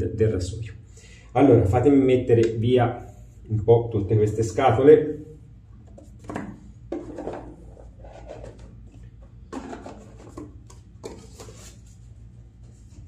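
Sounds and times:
boxes rubbing and sliding: 6.9 - 12.1.

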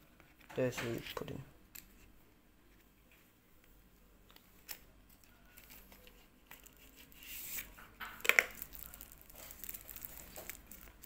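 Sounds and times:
plastic bag crinkling: 8.2 - 11.0.

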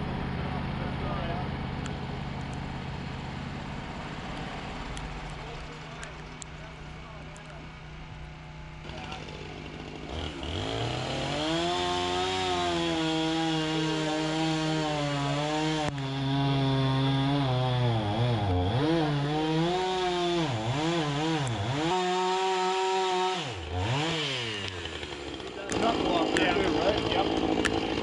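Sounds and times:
chainsaw cutting log: 8.7 - 28.0.

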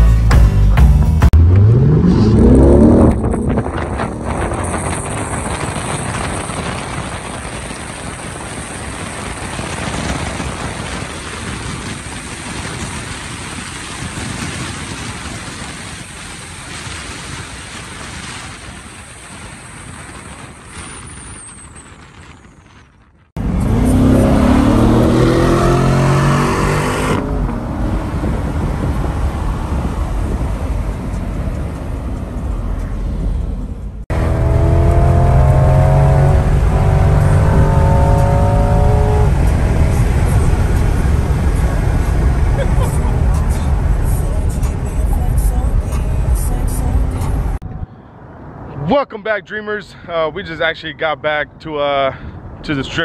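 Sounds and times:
car engine: 0.0 - 22.1, 23.2 - 48.9
engine accelerating hard: 1.0 - 12.3, 23.4 - 47.6
cars at highway speed: 1.3 - 21.7, 23.3 - 53.0
tyre and wind noise: 1.3 - 48.7.

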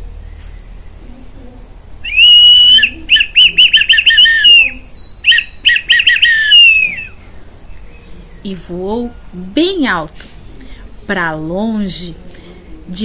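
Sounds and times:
wooden bird whistle chirping: 2.0 - 7.2.

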